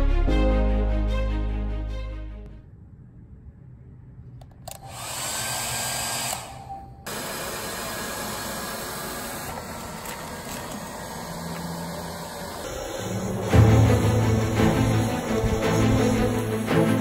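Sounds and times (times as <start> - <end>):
hair dryer blowing: 4.7 - 17.0.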